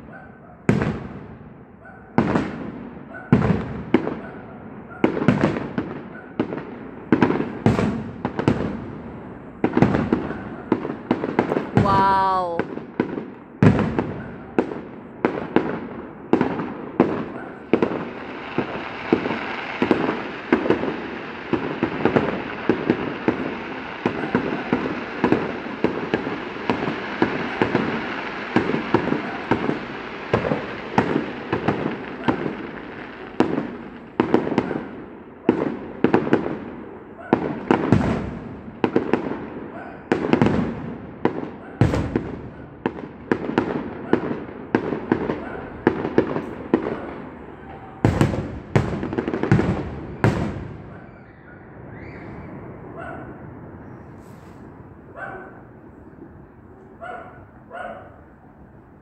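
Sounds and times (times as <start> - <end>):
heavy firework booms: 0.0 - 54.8
firework crackling hiss: 17.7 - 34.8, 54.2 - 54.8.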